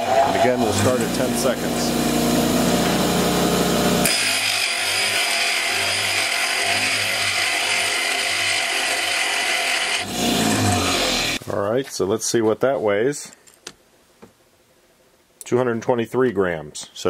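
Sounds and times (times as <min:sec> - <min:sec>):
grinder grinding steel: 0:00.0 - 0:11.4
motor running hum: 0:00.3 - 0:11.4.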